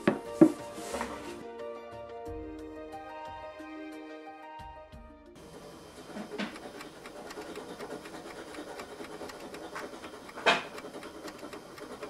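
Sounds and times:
hand tool scratching on wood: 0:00.4 - 0:01.4, 0:06.0 - 0:12.0.

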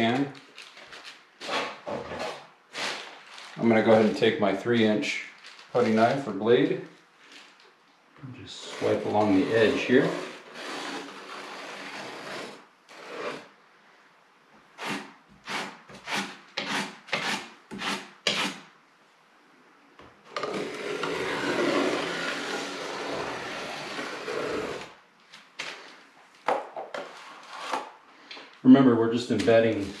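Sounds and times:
putty knife scraping compound: 0:01.4 - 0:03.0, 0:08.6 - 0:13.5, 0:14.8 - 0:18.7, 0:20.3 - 0:25.0, 0:27.0 - 0:28.0.

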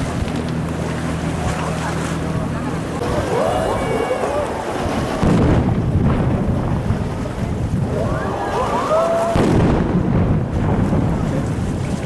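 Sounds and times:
rumble of firework bursts: 0:04.9 - 0:08.5, 0:09.2 - 0:12.0
loud firework bang: 0:05.2 - 0:07.0, 0:09.2 - 0:11.2.

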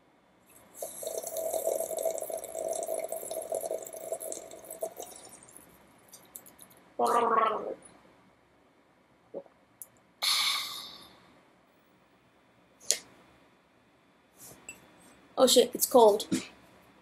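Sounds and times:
person gargling: 0:07.0 - 0:07.8.

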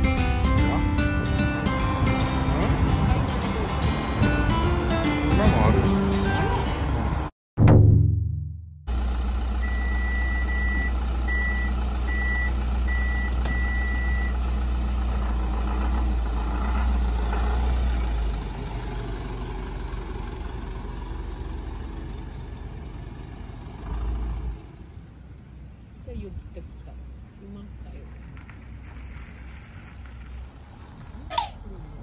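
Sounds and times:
vehicle engine idling: 0:08.9 - 0:32.0.

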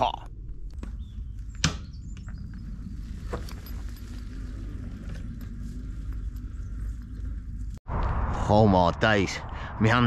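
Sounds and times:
electric bike rumble: 0:02.0 - 0:07.8.

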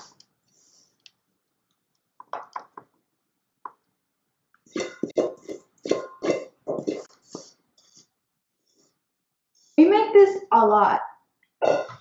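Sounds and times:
spoon scraping metal bowl: 0:04.7 - 0:08.1.

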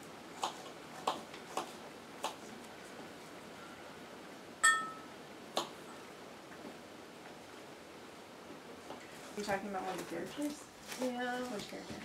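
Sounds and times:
glass clink ringing: 0:04.6 - 0:05.1.

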